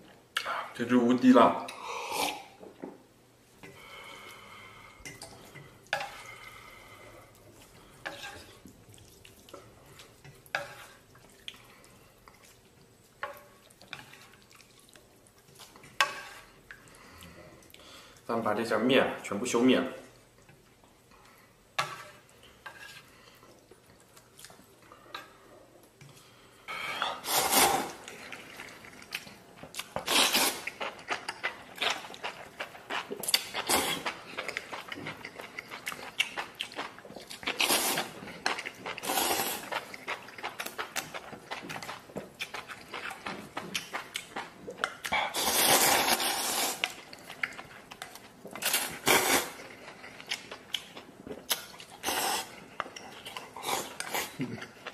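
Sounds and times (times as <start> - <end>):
chewing: 3.6 - 18.3, 22.0 - 26.4, 27.0 - 54.9
noodles slurped: 27.0 - 54.8.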